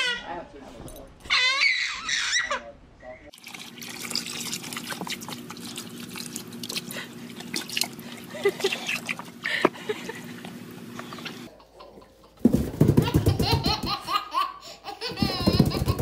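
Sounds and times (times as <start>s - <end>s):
small splashes and drips: 3.3s - 9.6s
water trickling into basin: 3.3s - 9.6s.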